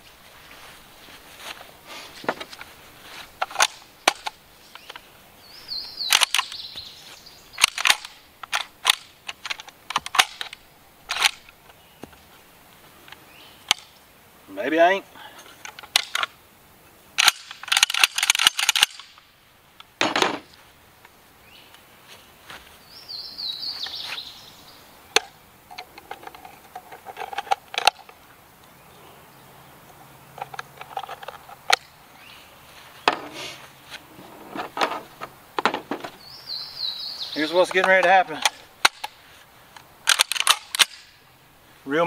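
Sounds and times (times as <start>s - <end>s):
shotgun clicks and clacks: 17.2s - 19.2s, 40.1s - 41.0s.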